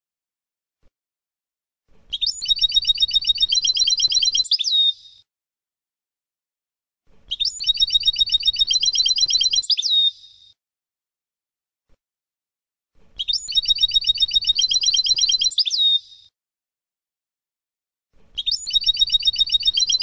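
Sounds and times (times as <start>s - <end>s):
goldfinch song: 2.1s - 5.2s, 7.3s - 10.5s, 13.2s - 16.3s, 18.3s - 20.0s.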